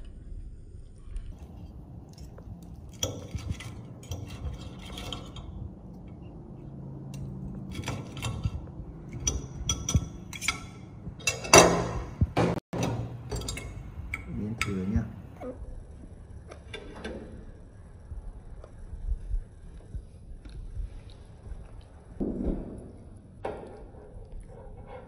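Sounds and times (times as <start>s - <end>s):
low steady hum: 0.0s - 25.0s
kitchenware clattering: 7.6s - 15.0s
kitchenware clinking and knocking: 7.6s - 15.0s.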